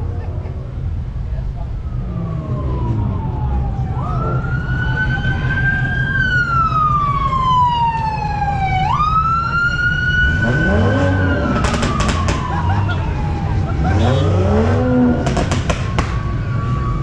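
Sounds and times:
car engines rumbling: 0.0 - 17.0
emergency siren wailing: 1.4 - 17.0
engine revving: 10.1 - 17.0.

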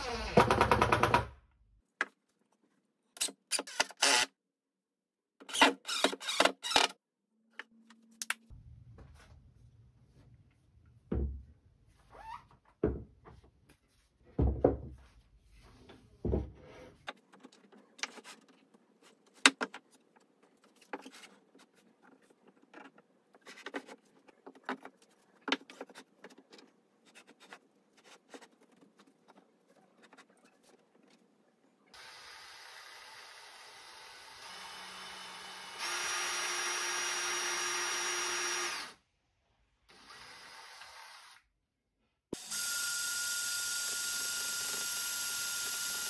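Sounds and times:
cordless drill whirring: 32.0 - 39.0, 39.9 - 41.4.

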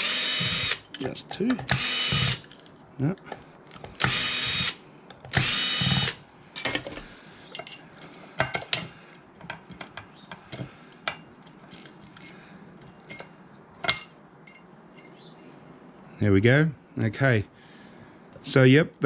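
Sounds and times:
light metallic clinks: 7.5 - 15.4.

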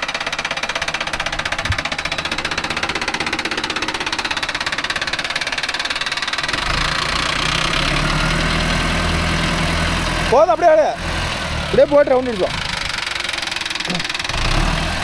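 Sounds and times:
deep steady rumble: 0.0 - 5.5
tractor engine knocking: 0.0 - 15.0.

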